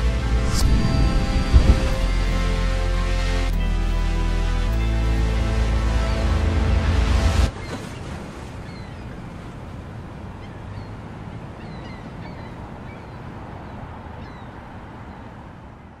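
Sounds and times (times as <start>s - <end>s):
low rumble of wind or water: 0.0s - 16.0s.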